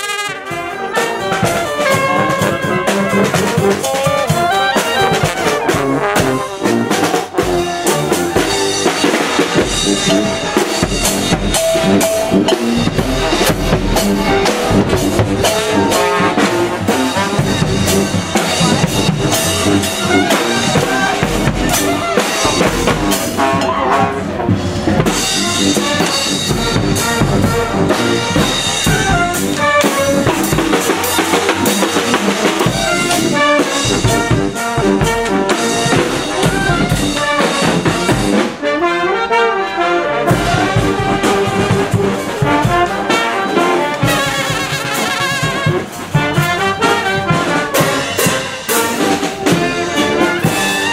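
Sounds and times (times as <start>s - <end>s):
horn glide: 0.0s - 37.7s
bass drum and snare drums: 0.0s - 38.6s, 40.3s - 50.9s
trumpets and trombones: 0.0s - 50.9s.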